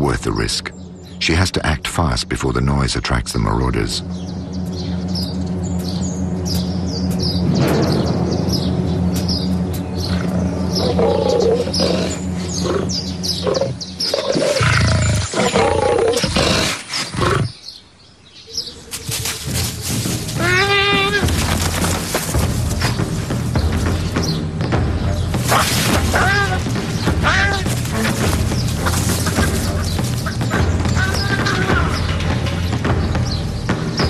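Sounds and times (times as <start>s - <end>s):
big cat growling and roaring: 10.1s - 17.6s.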